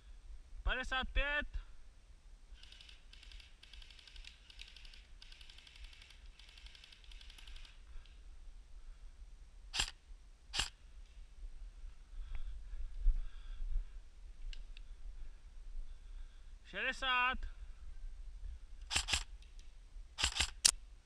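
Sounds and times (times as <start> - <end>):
airsoft guns firing bursts: 2.6 - 7.8, 18.9 - 19.3, 20.2 - 20.7.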